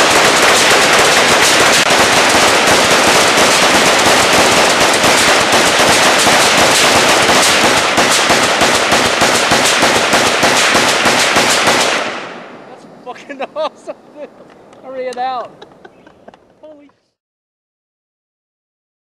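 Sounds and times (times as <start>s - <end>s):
rifles firing rapidly: 0.0s - 12.2s.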